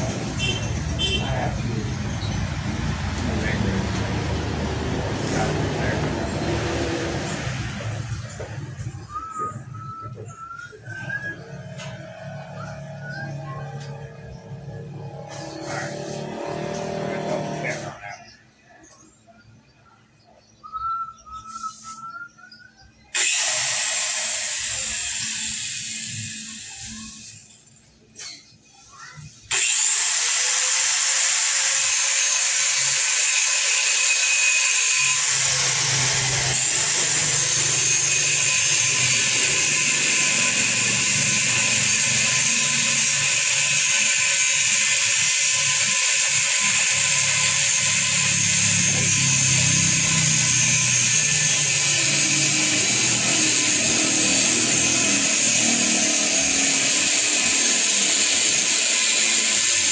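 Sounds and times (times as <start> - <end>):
angle grinder cutting metal pipe: 0.0 - 8.4, 23.2 - 27.5, 29.5 - 59.9.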